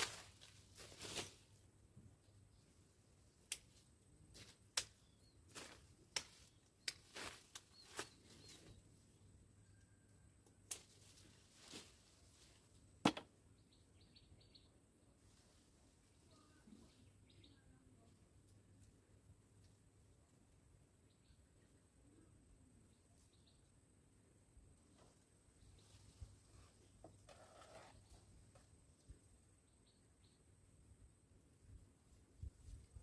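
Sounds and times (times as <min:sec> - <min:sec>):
branches being pruned clicking: 0:10.6 - 0:11.0.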